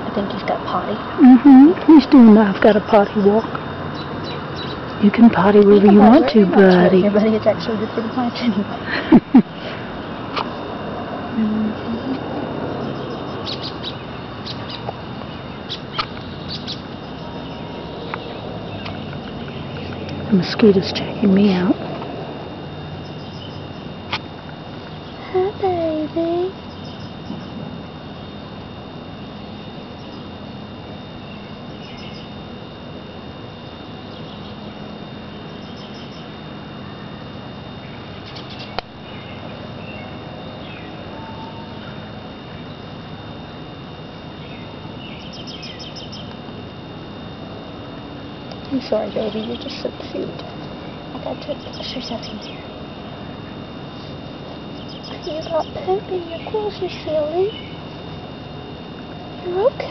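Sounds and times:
faint high hum: 0:00.0 - 0:59.9
faint high chirps: 0:34.0 - 0:42.9.

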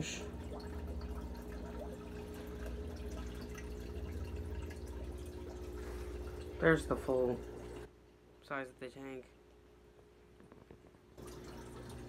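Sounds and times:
air bubbles popping in water: 0:00.0 - 0:05.8
small drips and ticks: 0:00.0 - 0:08.4, 0:09.2 - 0:12.0
steady low hum: 0:00.0 - 0:12.0.

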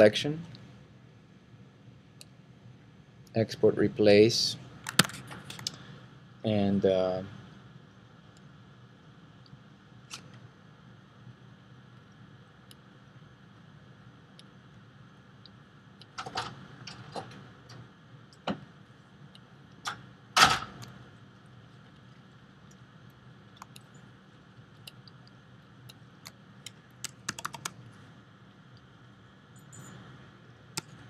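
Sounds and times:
faint steady hum: 0:00.0 - 0:31.0
keyboard and mouse clicks: 0:23.5 - 0:24.0, 0:24.7 - 0:27.8, 0:30.8 - 0:31.0.

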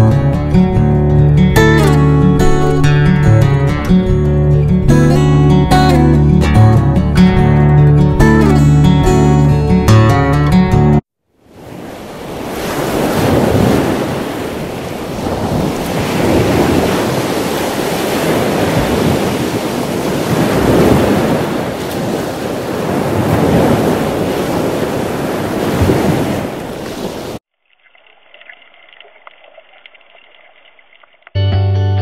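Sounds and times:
ocean waves washing: 0:11.4 - 0:27.4.

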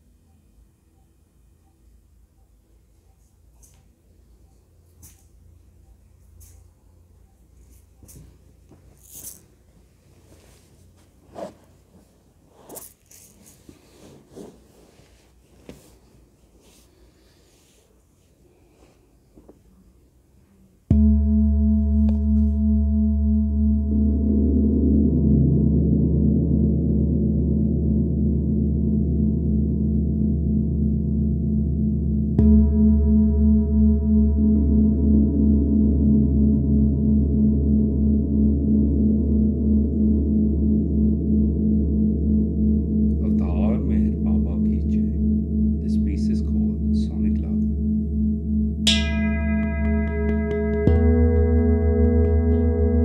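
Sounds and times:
small items handled: 0:07.6 - 0:09.6, 0:10.2 - 0:16.0
person moving and sitting down: 0:07.6 - 0:17.0
clothing brushing: 0:08.7 - 0:17.0
singing bowl struck with mallet: 0:20.9 - 0:24.6, 0:43.1 - 0:53.0
gong and singing bowls humming: 0:20.9 - 0:53.0.

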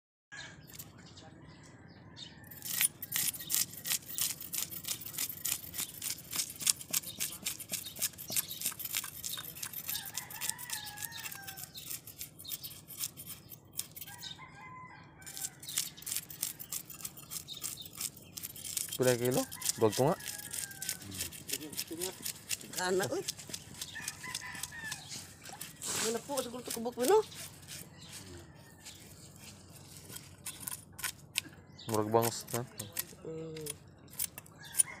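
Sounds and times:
knife scraping fish scales: 0:02.5 - 0:14.4, 0:15.2 - 0:35.0
rooster crowing: 0:09.8 - 0:11.8, 0:14.0 - 0:16.0, 0:19.2 - 0:21.4, 0:23.8 - 0:26.0, 0:27.8 - 0:29.4, 0:34.5 - 0:35.0.

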